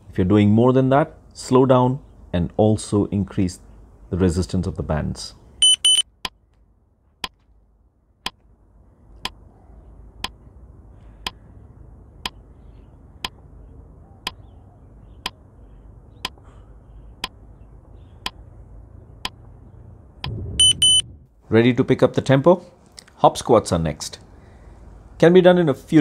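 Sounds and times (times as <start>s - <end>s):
faint low rumble: 16.8s - 21.8s.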